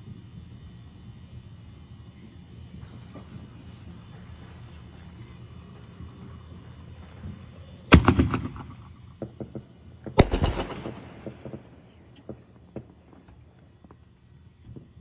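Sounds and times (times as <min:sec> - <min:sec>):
crackling firework pops: 0:02.8 - 0:15.0
firework bangs: 0:06.2 - 0:13.3.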